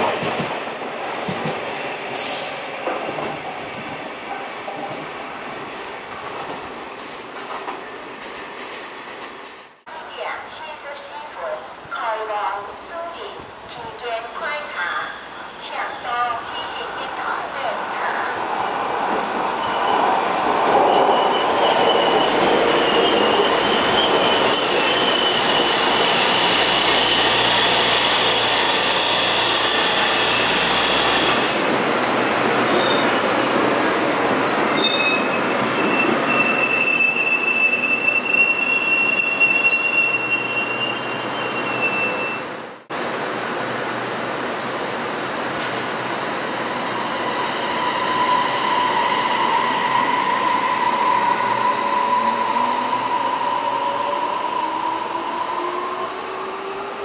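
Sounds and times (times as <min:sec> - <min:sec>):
train rail noise: 0:00.0 - 0:57.0
train wheels squealing: 0:19.6 - 0:20.1, 0:20.8 - 0:32.2, 0:32.8 - 0:42.5, 0:46.4 - 0:55.5.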